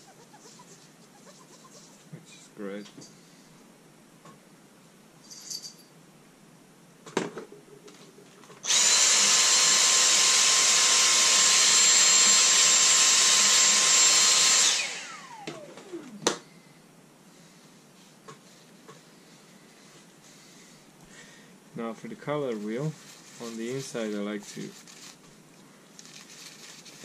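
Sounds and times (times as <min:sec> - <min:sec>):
cordless vacuum running: 0:08.6 - 0:16.4.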